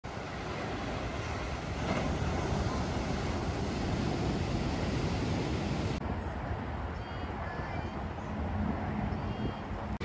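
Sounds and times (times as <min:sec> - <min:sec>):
surf breaking over rocks: 0:00.1 - 0:06.0
wind rumbling on microphone: 0:00.1 - 0:10.0.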